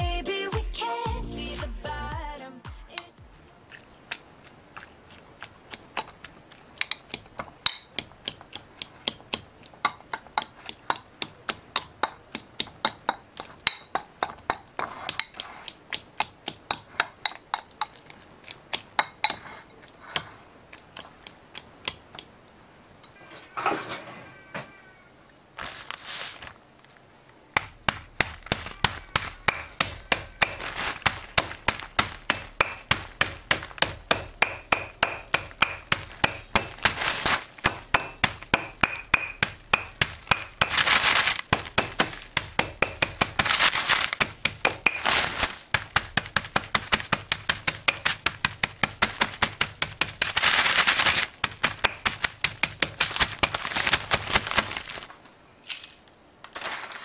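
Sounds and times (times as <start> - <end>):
rolling pin pounding biscuits: 5.3 - 22.3, 27.5 - 55.0
crunching rustle of crumbs in bag: 25.5 - 27.0, 30.6 - 32.2, 40.7 - 41.5, 43.4 - 44.2, 45.0 - 45.7, 50.2 - 51.4, 52.9 - 55.2, 56.5 - 57.0.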